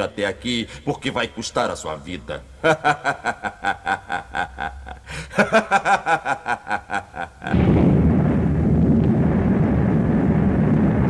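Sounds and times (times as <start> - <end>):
man laughing villainously: 2.6 - 7.6
loud low rumble: 7.4 - 11.0.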